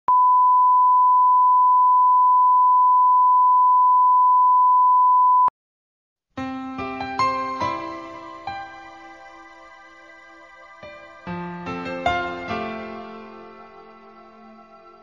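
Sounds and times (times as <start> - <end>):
music: 6.4 - 15.0.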